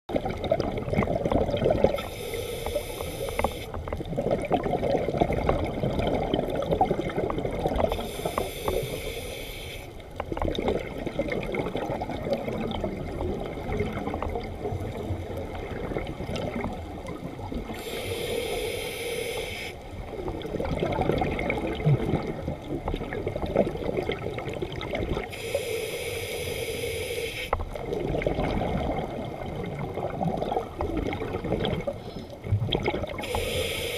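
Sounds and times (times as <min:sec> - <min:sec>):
bubbling exhaled air: 0:00.1 - 0:33.9
hissing regulator inhales: 0:02.0 - 0:03.8, 0:07.9 - 0:10.0, 0:17.8 - 0:19.8, 0:25.3 - 0:27.6, 0:33.2 - 0:33.9.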